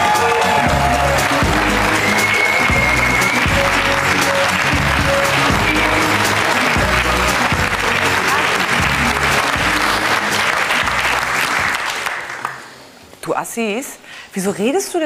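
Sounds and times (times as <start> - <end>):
entrance music with bass beat: 0.0 - 11.1
studio audience applauding: 0.0 - 12.9.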